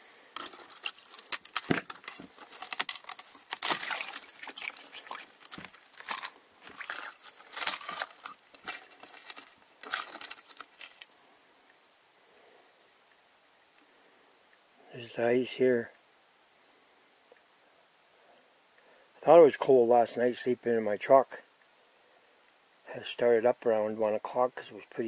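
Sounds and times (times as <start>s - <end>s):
ice cracking and crunching: 0.4s - 11.1s.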